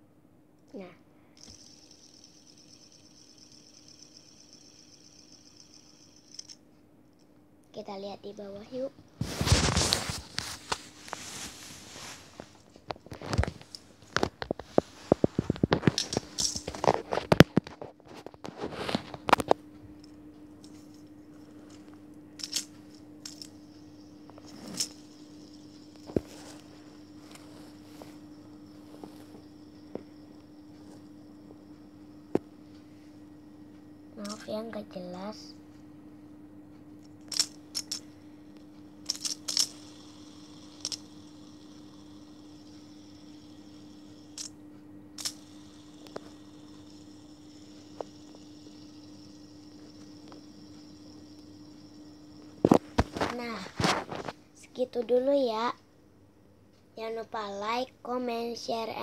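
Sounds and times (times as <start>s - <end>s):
faint steady hum: 0.0s - 59.0s
plastic fidget spinner clicks: 1.4s - 6.6s, 13.1s - 17.8s, 22.4s - 23.5s, 34.2s - 34.7s, 37.2s - 38.1s, 39.0s - 44.6s, 45.2s - 51.4s.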